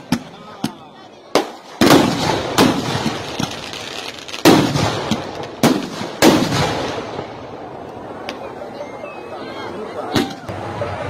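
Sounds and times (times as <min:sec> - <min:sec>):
fireworks bangs with echoing rumble: 0:00.0 - 0:07.8
crackling fireworks pops: 0:00.0 - 0:08.4.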